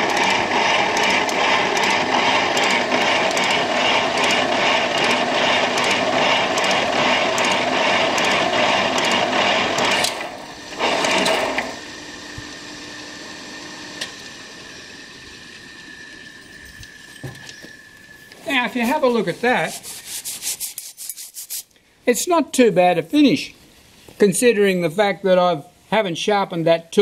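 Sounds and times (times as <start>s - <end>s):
metal shaper cutting metal: 0.0s - 11.8s.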